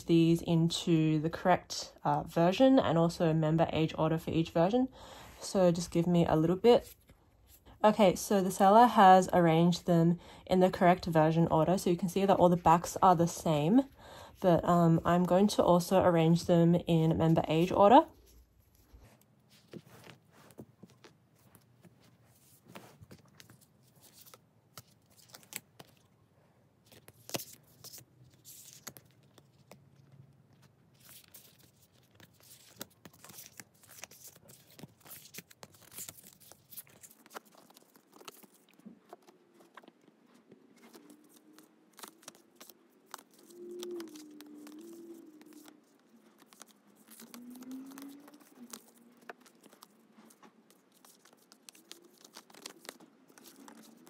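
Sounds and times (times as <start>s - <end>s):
cards clicking and scraping: 22.4s - 26.0s, 26.8s - 54.0s
faint wavering hum: 38.8s - 50.7s.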